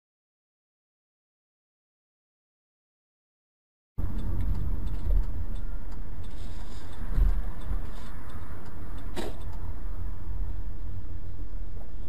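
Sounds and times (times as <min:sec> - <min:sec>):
car driving heard from cabin: 0:04.0 - 0:12.0.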